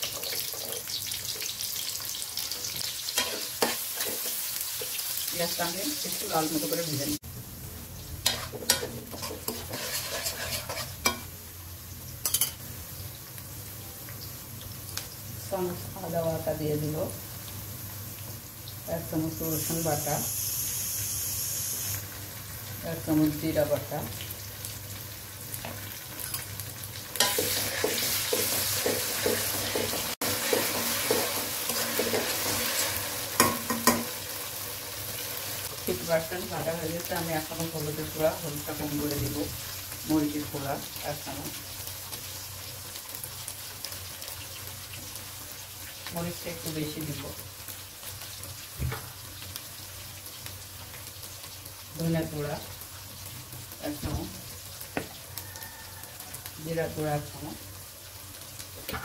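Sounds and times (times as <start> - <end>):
onions sizzling in hot oil: 0.0 - 59.0
spatula scraping and knocking pan: 8.2 - 11.3, 27.2 - 32.8.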